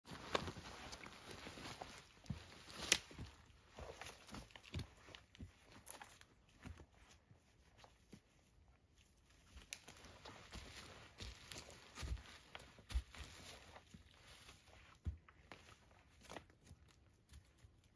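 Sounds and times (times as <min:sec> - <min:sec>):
footsteps crunching on dry leaves: 0:09.8 - 0:14.8.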